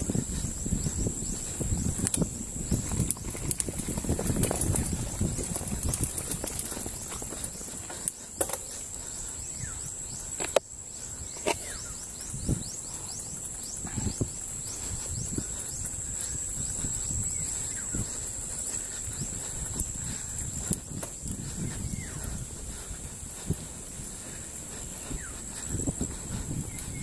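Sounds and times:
bike rattling and knocking: 0.0s - 9.1s, 17.9s - 22.4s
bike tyres rumbling on dirt: 0.0s - 27.0s.

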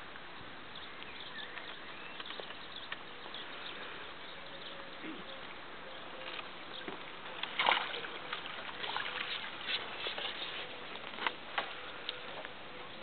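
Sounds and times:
fish splashing at water surface: 7.3s - 10.8s.

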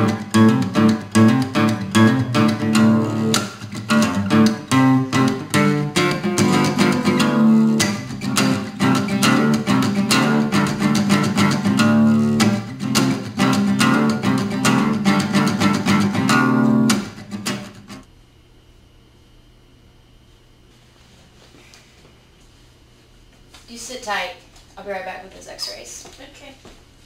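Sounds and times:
acoustic guitar strummed and plucked: 0.0s - 18.0s.

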